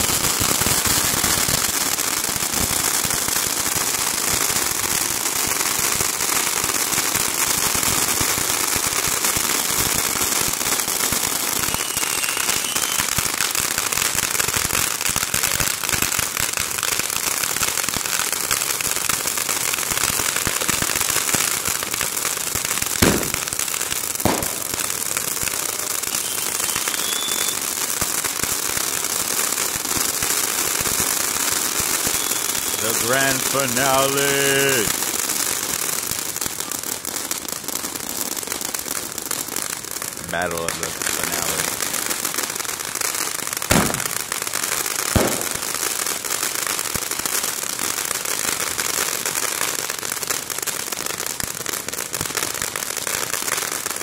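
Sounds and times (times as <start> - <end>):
fireworks crackling: 0.0 - 54.0
loud firework bangs: 8.0 - 16.8, 20.3 - 28.4, 30.4 - 35.2, 39.7 - 46.6.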